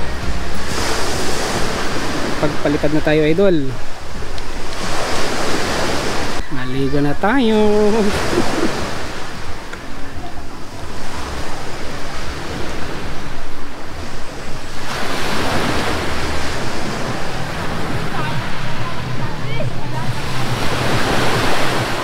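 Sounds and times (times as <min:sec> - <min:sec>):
surf washing onto beach: 0:00.0 - 0:22.0
wind on microphone: 0:07.8 - 0:22.0.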